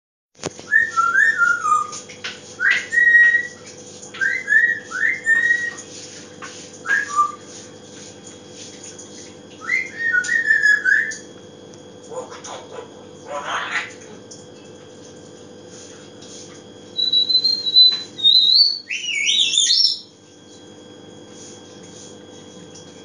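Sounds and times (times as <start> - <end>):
faint steady hum: 0.4 - 23.0
parrot whistling: 0.7 - 2.0, 2.6 - 3.6, 4.2 - 5.8, 6.8 - 7.4, 9.6 - 11.2, 17.0 - 20.1.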